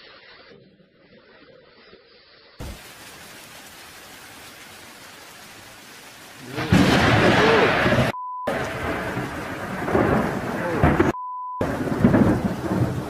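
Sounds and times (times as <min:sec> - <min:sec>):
steady rain hiss: 0:00.0 - 0:13.0
rumbling thunderclap: 0:06.4 - 0:13.0
short beep tone: 0:11.2 - 0:11.6.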